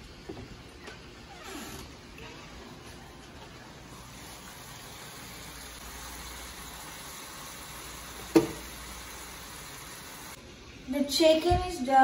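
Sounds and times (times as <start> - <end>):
pot of water boiling: 2.6 - 10.4
chicken sizzling in a pan: 4.0 - 10.4.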